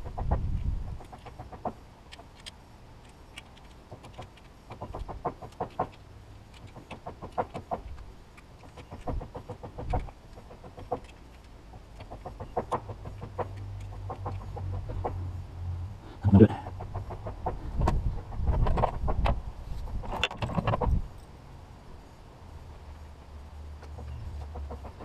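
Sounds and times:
chickens clucking: 16.2s - 19.3s.

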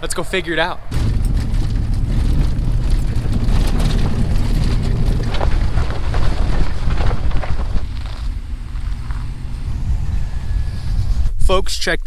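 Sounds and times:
truck engine and tyres rumbling: 0.0s - 11.6s
stones clicking under wheels: 1.0s - 9.4s.

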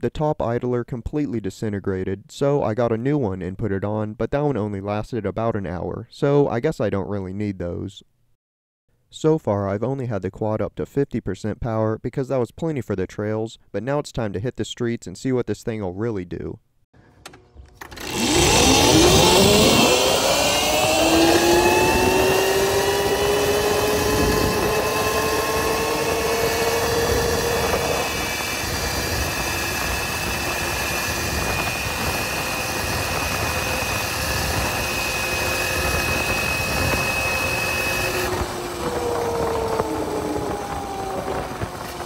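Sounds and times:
electric motor whine: 17.6s - 42.0s
wind rush: 18.0s - 42.0s.

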